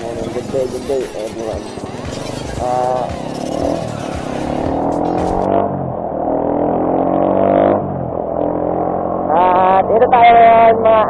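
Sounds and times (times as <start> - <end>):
motorcycle engine pulling away: 1.3 - 9.8.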